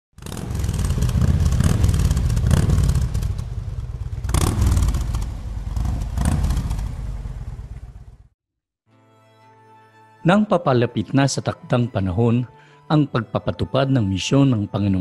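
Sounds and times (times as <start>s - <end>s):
rumbling engine with rattling clatter: 0.2s - 8.3s.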